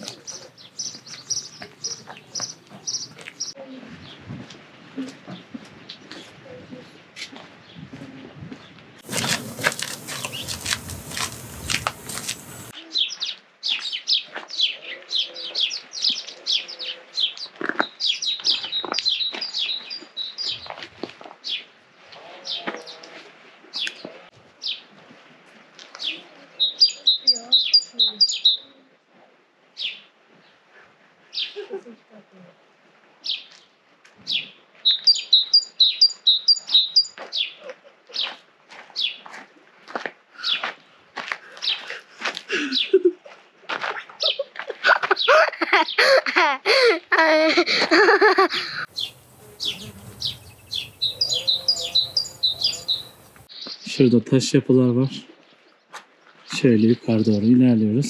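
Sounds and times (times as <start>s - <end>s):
small birds chirping: 0.0s - 4.2s, 9.0s - 20.7s, 26.0s - 28.8s, 34.3s - 38.4s, 40.4s - 40.6s, 41.6s - 43.1s, 48.0s - 54.3s
high two-note bird calls: 49.0s - 53.3s.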